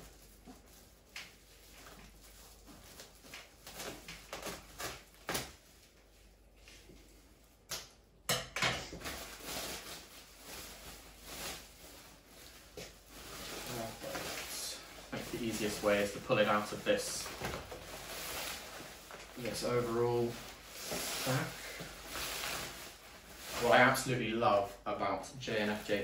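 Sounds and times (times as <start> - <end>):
sack rustling: 9.0 - 24.8.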